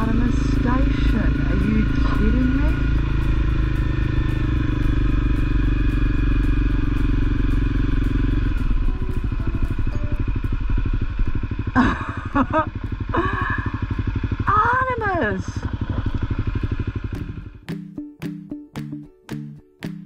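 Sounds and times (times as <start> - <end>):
motorcycle engine running: 0.0 - 18.4.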